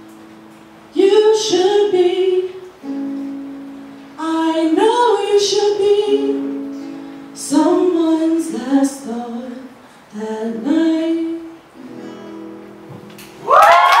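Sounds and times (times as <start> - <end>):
woman singing long notes: 4.2 - 12.6
audience cheering and whooping: 13.4 - 14.0.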